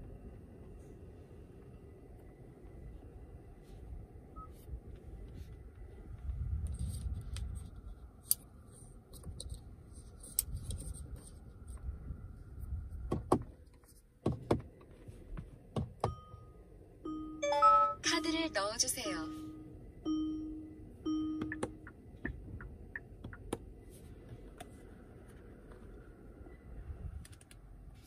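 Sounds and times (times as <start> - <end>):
electronic chime: 16.2 - 21.6.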